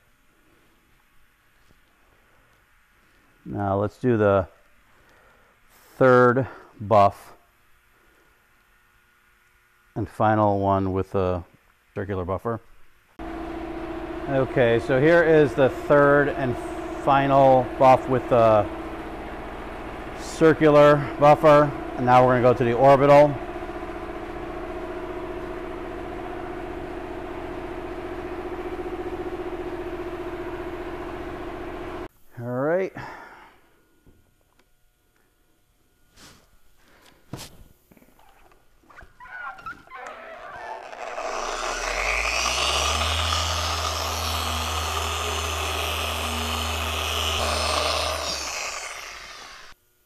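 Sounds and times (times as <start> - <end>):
orbital polisher running: 13.2 - 32.1, 40.7 - 49.8
electric polisher motor hum: 40.6 - 49.8.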